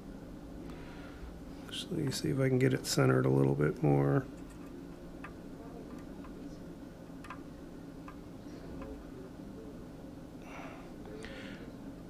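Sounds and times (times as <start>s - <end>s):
low steady hum: 0.0s - 12.0s
small metal clicks on circuit board: 7.2s - 8.2s.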